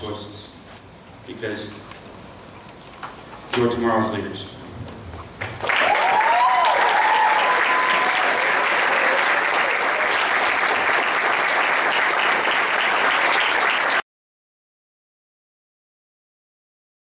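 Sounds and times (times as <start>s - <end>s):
audience clapping: 5.4s - 14.0s
audience cheering: 5.6s - 14.0s.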